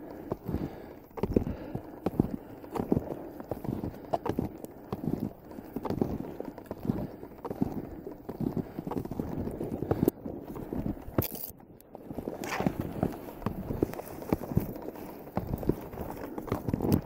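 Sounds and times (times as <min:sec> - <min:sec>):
footsteps crunching in snow: 0:00.0 - 0:17.0
brushing past branches: 0:12.4 - 0:12.8.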